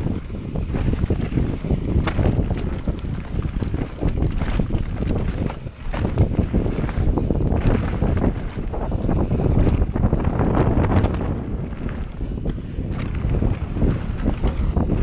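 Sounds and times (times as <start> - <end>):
wind buffeting microphone: 0.0 - 15.0
knocks and rattles: 2.0 - 12.2.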